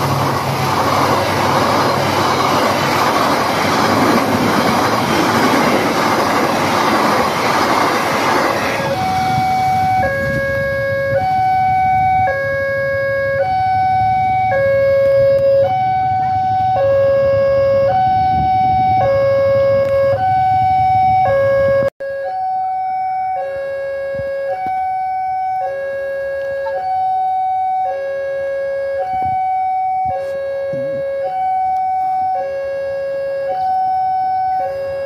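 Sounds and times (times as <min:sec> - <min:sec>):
train wheels on rails: 0:00.0 - 0:12.6
level-crossing alarm tones: 0:00.0 - 0:35.0.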